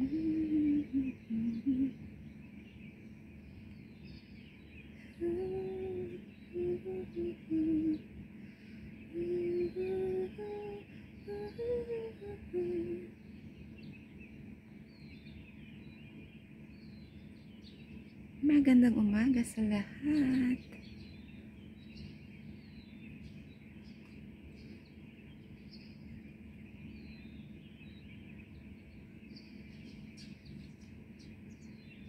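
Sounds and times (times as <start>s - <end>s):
woman humming a slow tune: 0.0s - 2.1s, 4.9s - 13.4s, 18.4s - 20.9s
birds chirping faintly: 0.0s - 32.0s.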